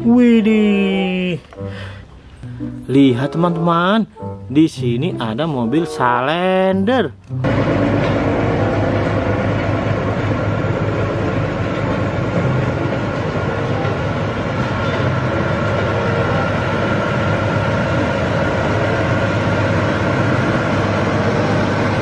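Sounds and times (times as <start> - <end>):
diesel engines droning: 7.4 - 22.0.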